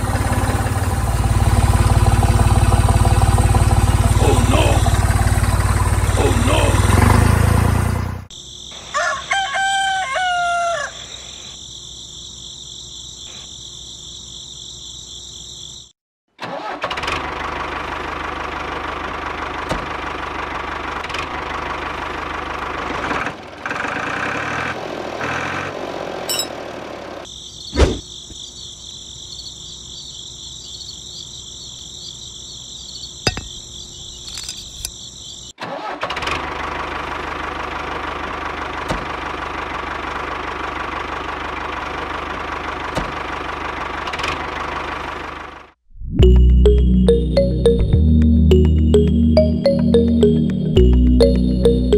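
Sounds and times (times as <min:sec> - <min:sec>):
rooster crowing: 0:08.8 - 0:11.3.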